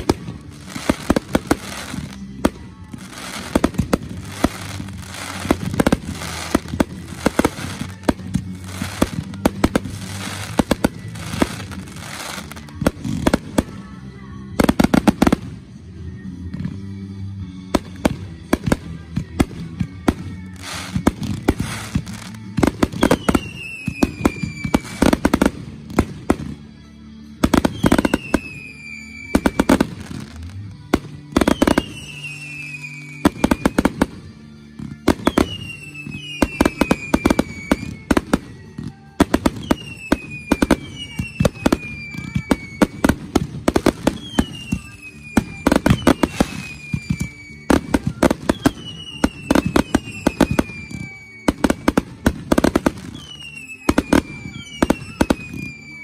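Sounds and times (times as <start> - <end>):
fireworks bangs and crackling: 0.0 - 16.9, 17.5 - 56.0
falling firework whistle: 22.9 - 25.4, 27.6 - 30.5, 31.4 - 34.1, 35.2 - 38.4, 39.4 - 56.0.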